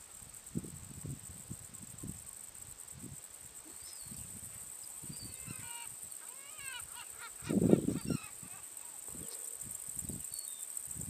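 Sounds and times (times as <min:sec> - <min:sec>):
steady high hiss: 0:00.0 - 0:11.0
wind gusts on microphone: 0:00.3 - 0:03.3, 0:04.0 - 0:06.2, 0:06.8 - 0:11.0
gulls calling: 0:05.0 - 0:09.4.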